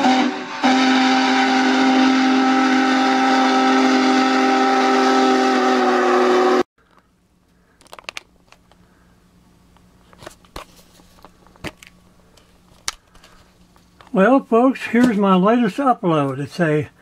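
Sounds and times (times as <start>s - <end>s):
train whistle chord: 0.0s - 6.7s.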